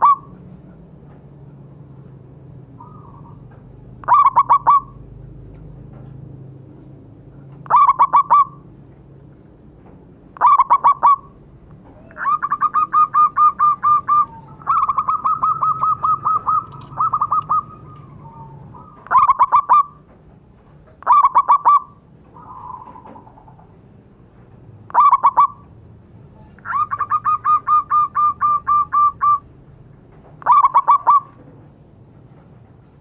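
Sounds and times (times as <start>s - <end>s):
dove cooing: 0.0s - 0.4s, 2.8s - 5.1s, 7.6s - 8.7s, 10.4s - 20.1s, 21.0s - 23.8s, 24.9s - 25.7s, 26.4s - 29.5s, 30.4s - 31.5s.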